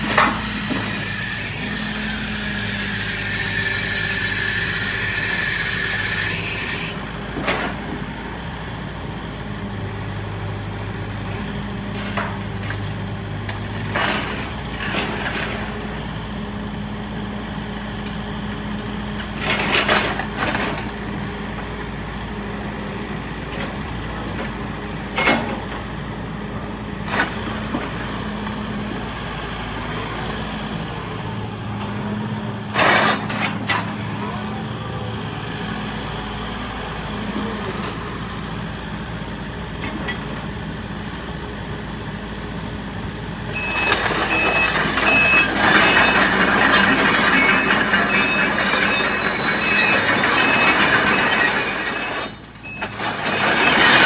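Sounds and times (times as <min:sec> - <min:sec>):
diesel engine idling: 0:33.5 - 0:39.8.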